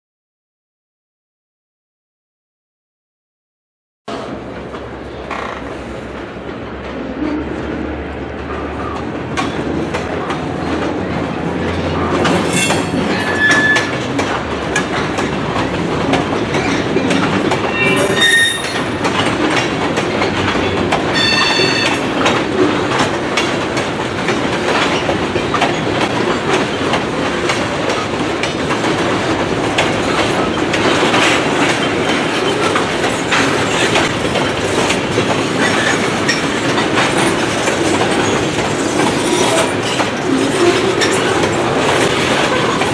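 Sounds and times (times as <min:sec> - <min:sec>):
wheels clattering over rail joints: 0:08.5 - 0:42.9
high-pitched flange squeals: 0:12.6 - 0:14.0, 0:17.7 - 0:19.0, 0:21.2 - 0:22.0.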